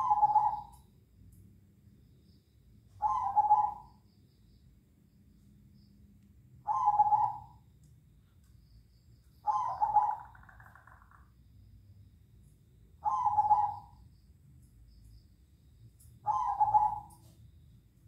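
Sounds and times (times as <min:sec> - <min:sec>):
doves cooing: 0:00.0 - 0:00.7, 0:03.0 - 0:03.9, 0:06.7 - 0:07.5, 0:09.5 - 0:11.2, 0:13.0 - 0:13.9, 0:16.3 - 0:17.2.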